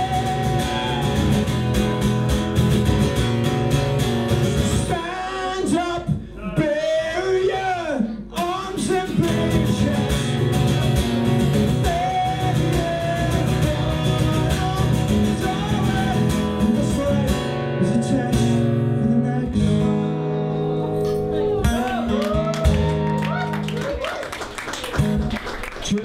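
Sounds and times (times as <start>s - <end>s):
acoustic guitar strumming: 0.0s - 5.8s, 8.3s - 23.6s.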